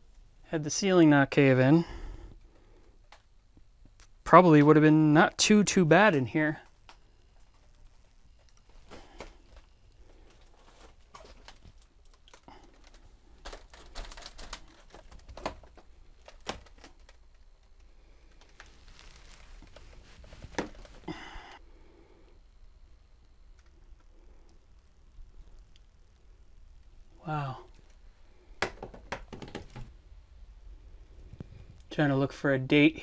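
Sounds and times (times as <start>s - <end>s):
short rustle: 18.6s - 21.1s.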